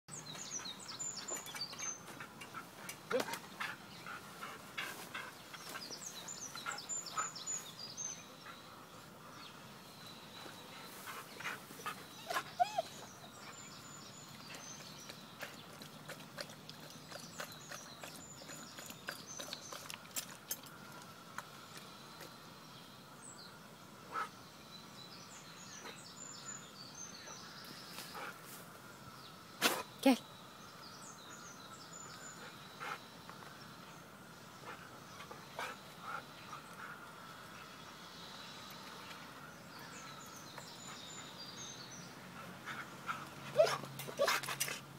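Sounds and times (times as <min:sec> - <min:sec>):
small birds chirping: 0:00.1 - 0:44.9
dog whining: 0:12.1 - 0:13.3, 0:43.6 - 0:44.4.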